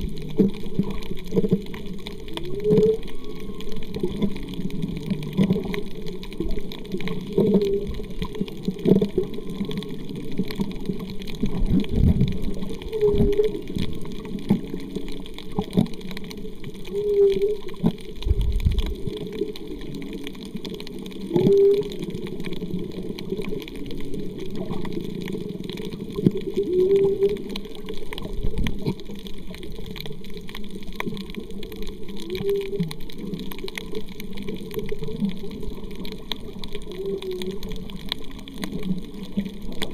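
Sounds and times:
muffled underwater noise: 0.0s - 39.9s.

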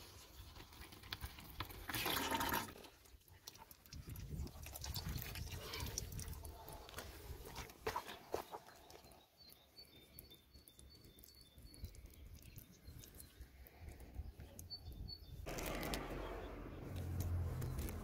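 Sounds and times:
faint bird chirps: 8.4s - 15.4s.

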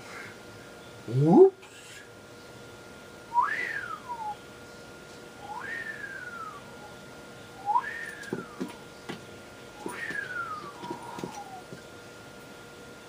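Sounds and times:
whistled call: 3.3s - 4.4s, 5.4s - 7.0s, 7.6s - 8.6s, 9.8s - 11.6s.

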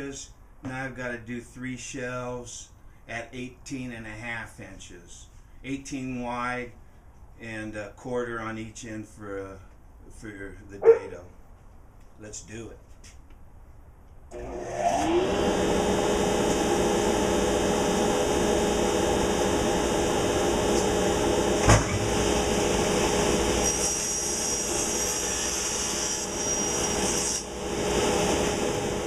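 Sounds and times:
table saw motor whining: 14.3s - 29.0s.

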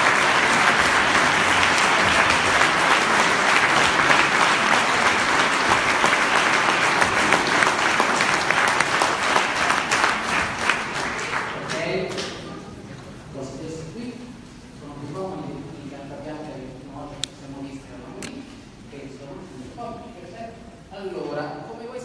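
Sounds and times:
audience applauding: 0.0s - 12.4s.

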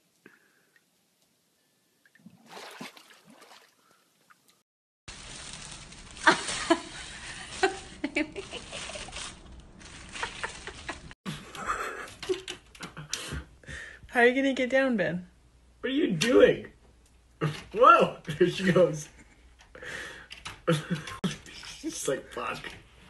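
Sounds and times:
water sloshing: 2.0s - 4.6s
plastic snack bag crinkling: 5.1s - 11.1s.

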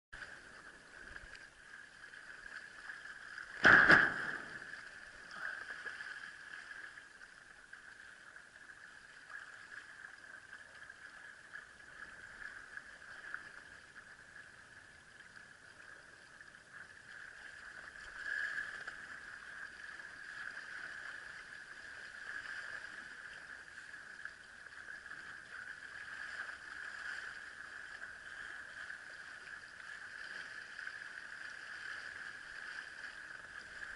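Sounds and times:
wind: 0.1s - 33.9s
water rushing: 0.2s - 7.4s
loud thump of board: 3.6s - 4.6s.

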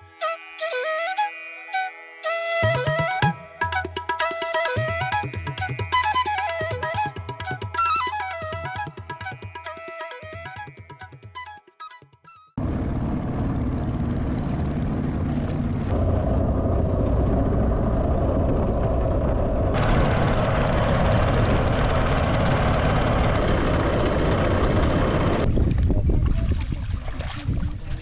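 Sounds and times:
wind buffeting microphone: 13.4s - 28.0s.

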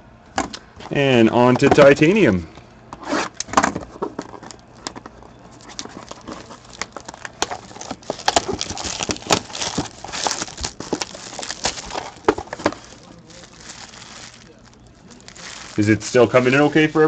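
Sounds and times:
plastic wrapper crinkling: 5.6s - 17.0s.

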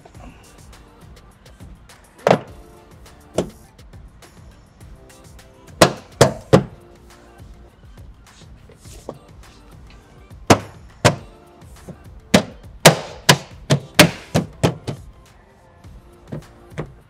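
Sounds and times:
background music: 0.0s - 17.0s
fist knocking on car panel: 5.8s - 6.8s, 10.5s - 11.3s, 12.4s - 15.1s.

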